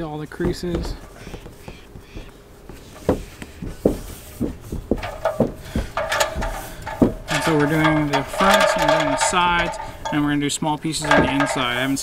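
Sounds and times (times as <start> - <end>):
hands rubbing tape on roof: 0.2 - 8.4.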